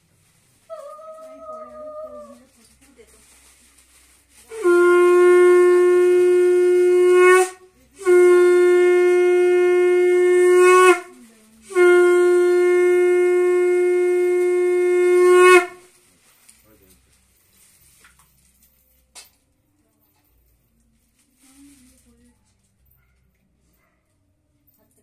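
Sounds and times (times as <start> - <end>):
conch shell blasts: 4.4 - 15.9.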